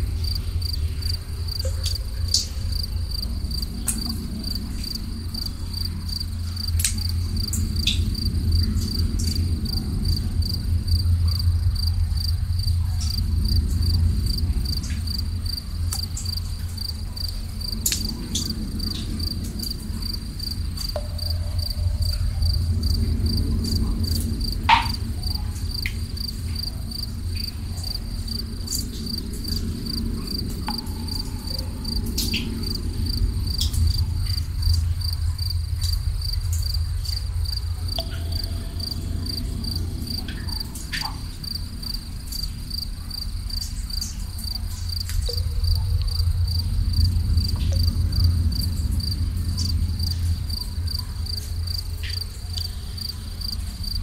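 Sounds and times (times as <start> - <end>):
crickets chirping: 0.0 - 54.0
low constant rumble: 0.0 - 54.0
water drips: 0.0 - 54.0.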